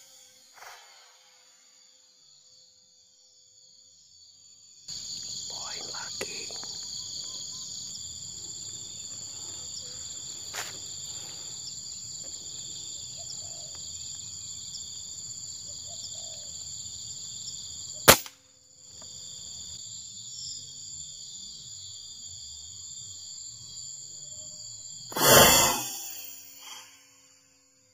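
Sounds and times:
high-pitched insect chorus: 0:00.0 - 0:27.9
air rifle shot: 0:18.1 - 0:18.3, 0:25.1 - 0:26.3.

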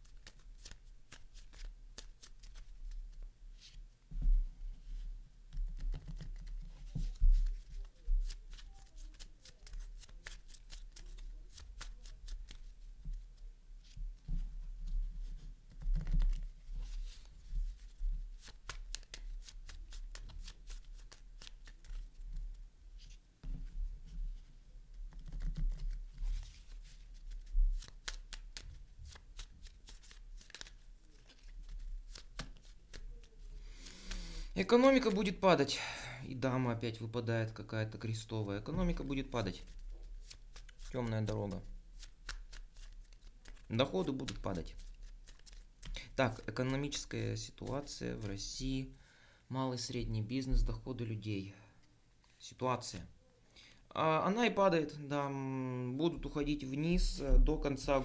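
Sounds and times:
playing cards being shuffled: 0:00.1 - 0:02.7, 0:05.7 - 0:12.7, 0:15.7 - 0:22.2, 0:25.1 - 0:34.4, 0:39.0 - 0:48.4.

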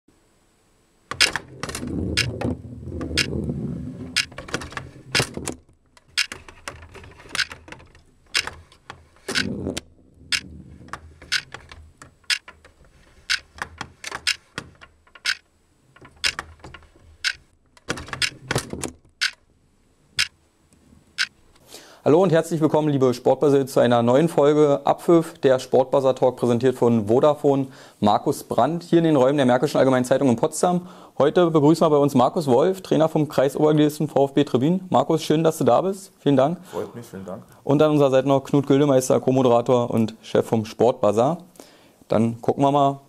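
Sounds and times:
ball clacking on plastic figures: 0:01.1 - 0:03.5, 0:04.1 - 0:19.5
ball rolling low rumble: 0:01.4 - 0:04.2, 0:09.4 - 0:11.3.

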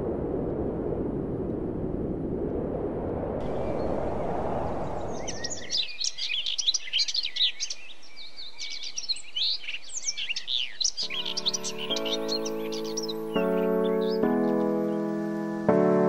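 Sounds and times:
low rushing noise: 0:00.0 - 0:07.0
birds chirping and trilling: 0:03.4 - 0:15.8
music: 0:11.0 - 0:16.0.

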